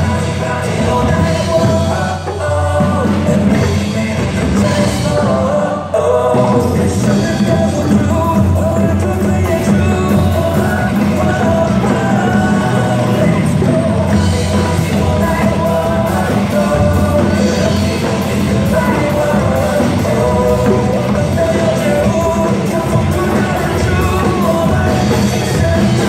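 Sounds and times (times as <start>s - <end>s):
upbeat song with singing: 0.0s - 26.0s
hand drums playing: 6.2s - 26.0s.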